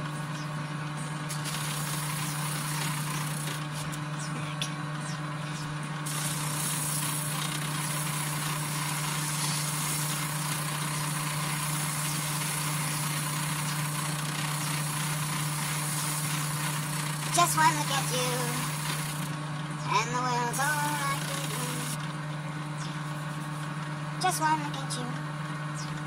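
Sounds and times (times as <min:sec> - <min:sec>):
electric grinder running: 0:01.2 - 0:04.0, 0:06.0 - 0:19.6, 0:20.5 - 0:22.1
hiss of metal grinding: 0:01.3 - 0:03.6, 0:06.1 - 0:19.3, 0:20.6 - 0:22.0.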